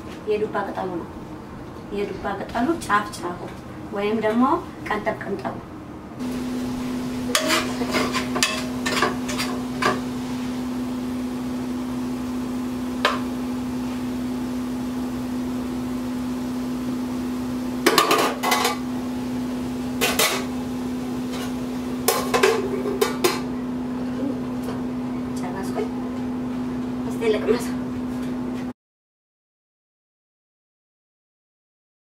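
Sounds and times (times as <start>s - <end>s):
steady hum: 0.3s - 28.6s
metal spoon scraping steel pot: 7.3s - 9.6s.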